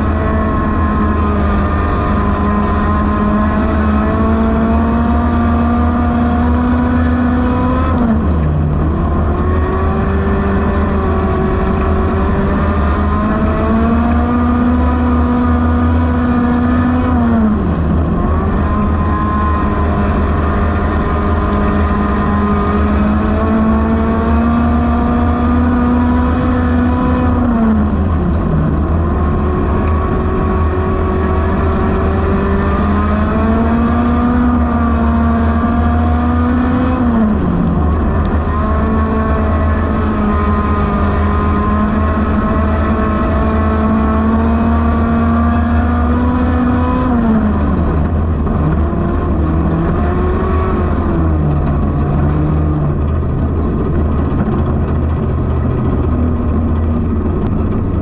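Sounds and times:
race car engine at high revs: 0.0 - 58.0.

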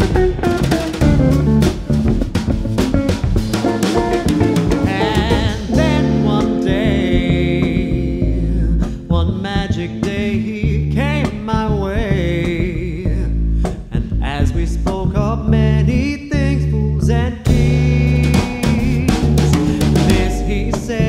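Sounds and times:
drum kit and cymbals: 0.0 - 10.5, 17.5 - 21.0
plucked double bass: 0.0 - 21.0
man singing: 3.6 - 21.0.

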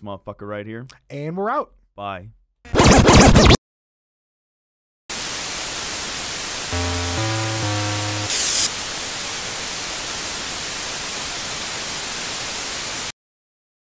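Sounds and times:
television static hiss: 5.1 - 13.1
low electronic buzzing tone: 6.7 - 8.7.

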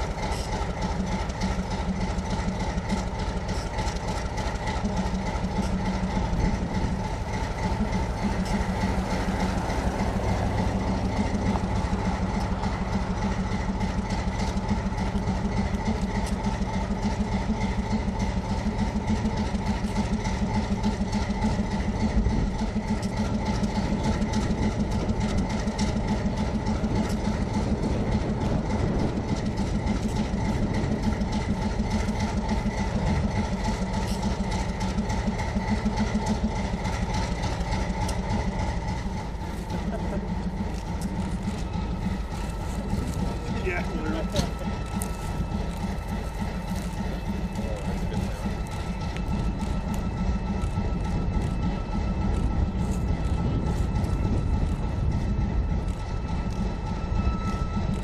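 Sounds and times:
diesel locomotive engine idling: 0.0 - 58.0.

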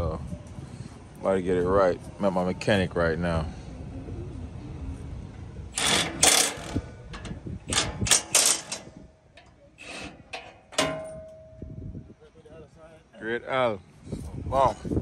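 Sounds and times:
metal tools clinking and rattling: 5.8 - 11.6
faint metallic ring: 5.8 - 11.9.

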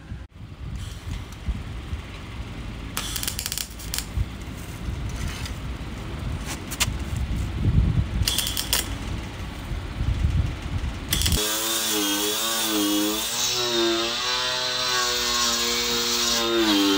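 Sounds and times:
welding torch flame roaring: 2.4 - 5.6, 8.2 - 16.9
sharp clicks: 8.2 - 9.0
angle grinder whining on metal: 8.3 - 8.9, 11.1 - 16.9.

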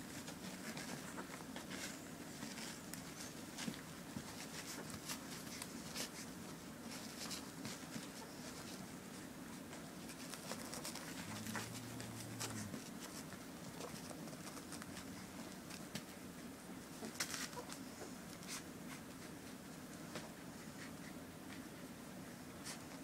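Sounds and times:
low room hum: 0.0 - 23.0.

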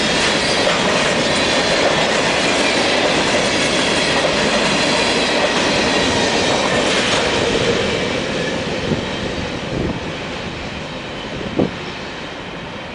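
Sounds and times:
freight train wheels on rails: 0.0 - 12.9.

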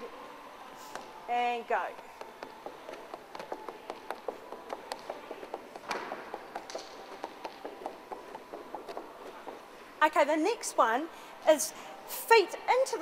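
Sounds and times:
footsteps on wooden floor: 2.2 - 9.8.

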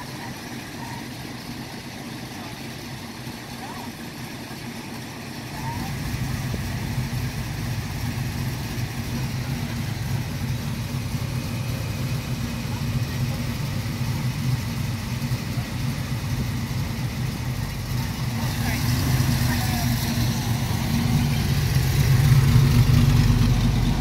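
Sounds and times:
car engines idling: 0.0 - 24.0.

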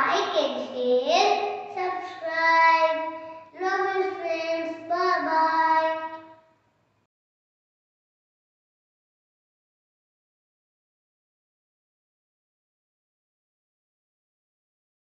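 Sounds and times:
boy singing: 0.0 - 6.2.

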